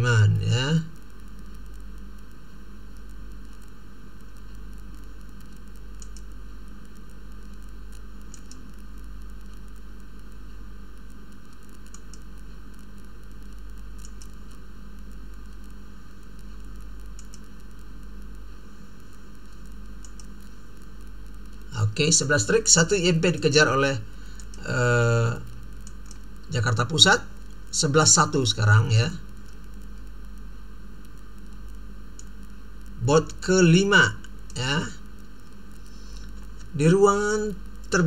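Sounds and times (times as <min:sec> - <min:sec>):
background hiss: 0:00.0 - 0:38.0
low hum: 0:00.0 - 0:38.0
computer mouse clicks: 0:04.9 - 0:09.8, 0:11.3 - 0:12.9, 0:14.0 - 0:17.9, 0:19.3 - 0:20.5, 0:24.3 - 0:24.7, 0:25.7 - 0:26.5, 0:31.0 - 0:32.4.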